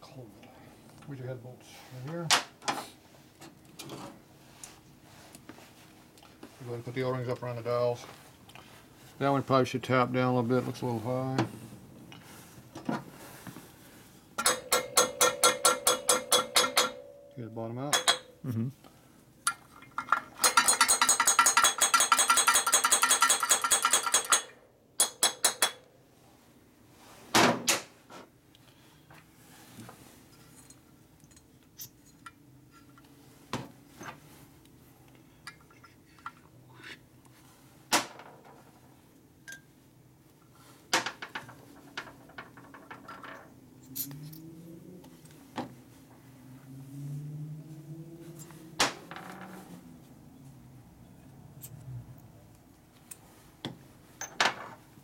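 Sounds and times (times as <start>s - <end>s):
metal taps and clinks: 14.4s - 18.4s, 19.5s - 25.8s, 39.4s - 39.7s, 53.1s - 54.6s.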